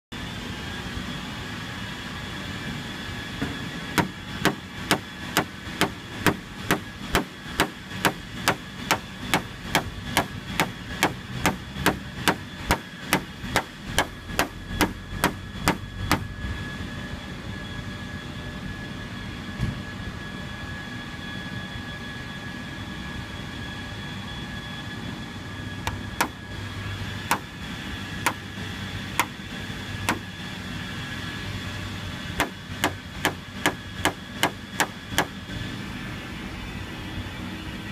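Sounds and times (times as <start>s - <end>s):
tool tapping on painted panel: 4.0s - 16.3s, 32.4s - 35.3s.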